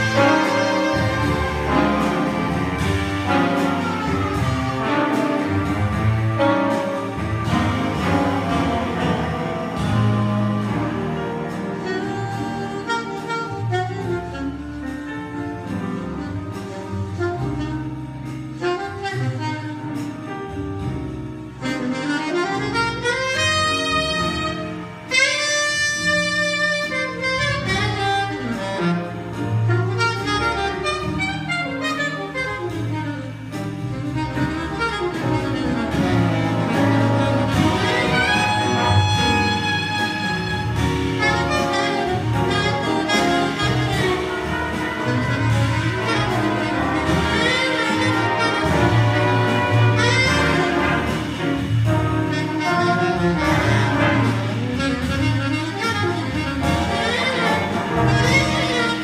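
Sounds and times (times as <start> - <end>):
jazz band playing swing: 0.0 - 59.0.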